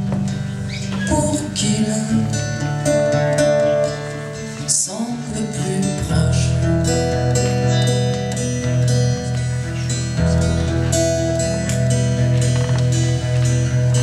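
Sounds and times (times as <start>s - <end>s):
strummed acoustic guitar: 0.0s - 14.0s
man singing: 1.0s - 3.4s, 4.4s - 7.7s.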